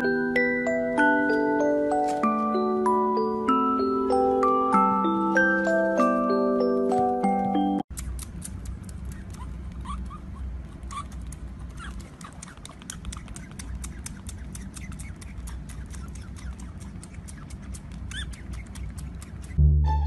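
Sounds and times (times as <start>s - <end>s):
glockenspiel-like music: 0.0s - 7.9s
otter suckling wet clicks: 7.9s - 9.8s, 10.8s - 19.6s.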